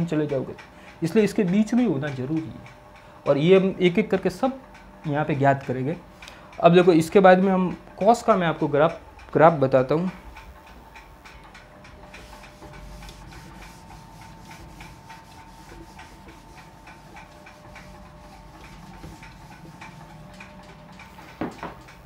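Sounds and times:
whiteboard being wiped: 12.1s - 20.4s.

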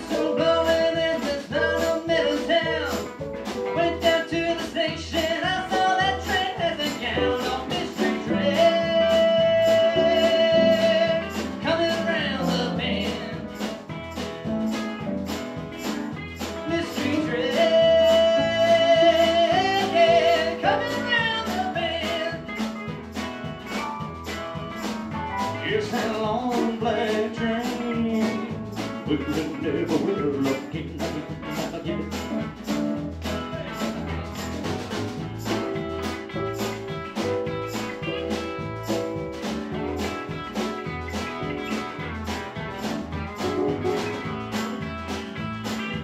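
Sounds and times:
man singing: 0.0s - 13.7s, 16.6s - 22.6s, 25.6s - 32.4s
live rockabilly band playing: 0.0s - 46.0s.

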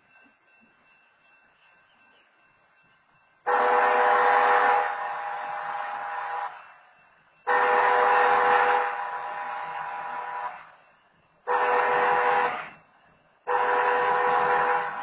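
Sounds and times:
locomotive air horn blasts: 3.5s - 6.7s, 7.5s - 10.8s, 11.4s - 12.8s, 13.4s - 15.0s.

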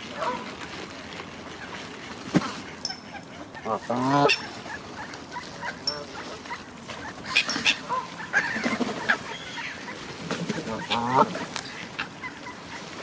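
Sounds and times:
ducks quacking: 1.5s - 13.0s
geese honking: 2.6s - 13.0s.

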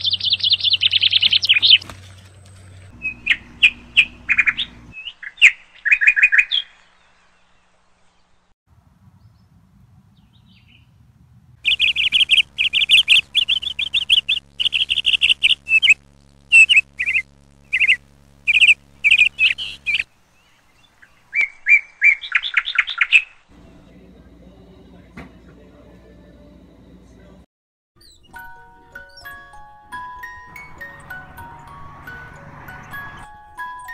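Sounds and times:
songbird chirping and trilling: 0.0s - 8.5s, 9.2s - 11.0s, 11.6s - 26.5s, 28.0s - 33.9s.

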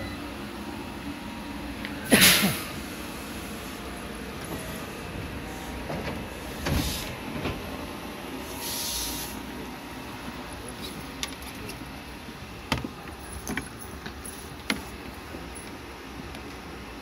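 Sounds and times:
train air brake hiss: 2.0s - 7.2s, 8.4s - 9.5s
train door thud: 5.6s - 7.8s.

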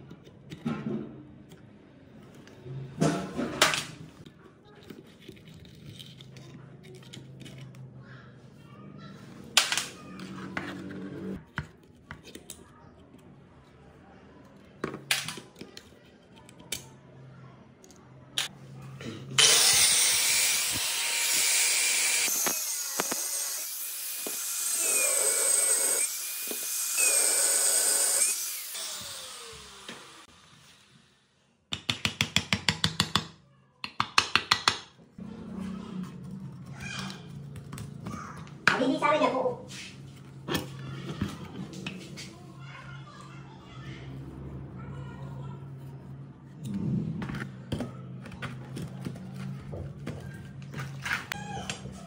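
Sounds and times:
electric grinder whining: 19.4s - 30.3s.

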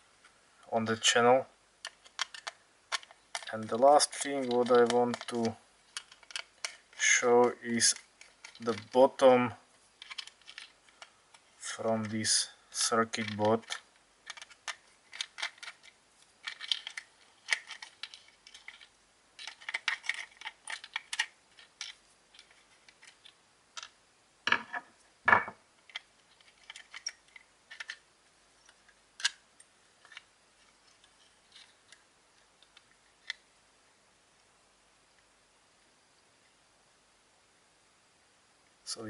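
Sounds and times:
plastic toy case handling clicks: 1.8s - 3.5s, 13.2s - 23.2s.

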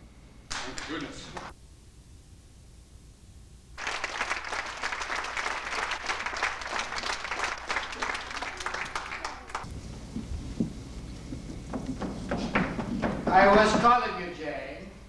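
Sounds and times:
audience applauding: 3.8s - 14.0s
low thuds: 9.7s - 14.1s.

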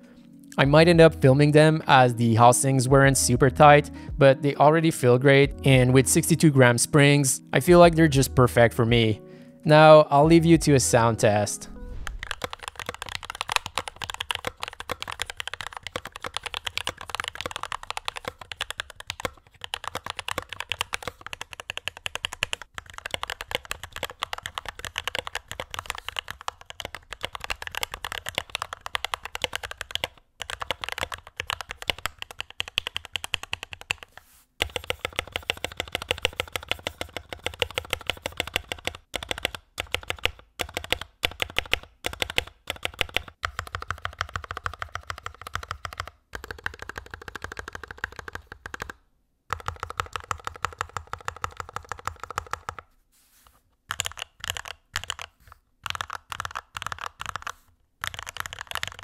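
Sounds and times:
mechanical keyboard key clacks: 55.9s - 59.0s.

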